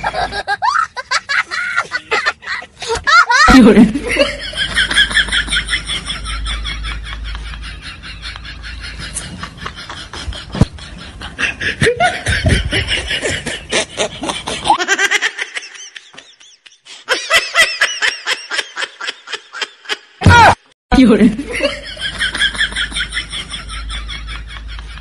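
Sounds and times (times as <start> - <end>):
person giggling: 0.0 - 5.5, 8.3 - 17.6.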